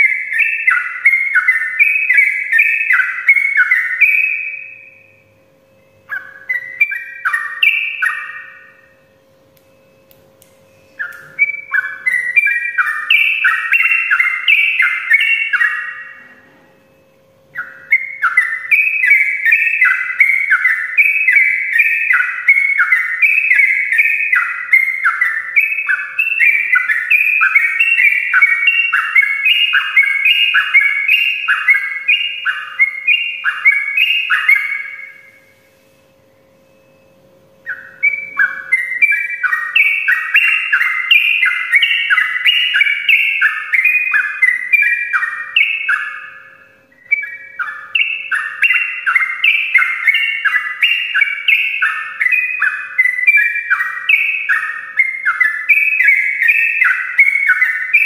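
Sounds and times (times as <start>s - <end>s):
bulbul singing whistled phrases: 0.0s - 58.0s.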